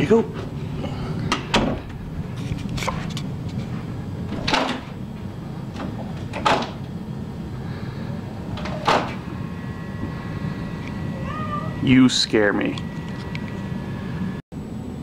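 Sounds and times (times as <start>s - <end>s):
door latch opening: 1.3s - 2.0s, 4.3s - 4.9s, 5.7s - 6.8s, 8.5s - 9.2s
door rattling and knocking in frame: 1.3s - 2.2s, 4.2s - 6.8s.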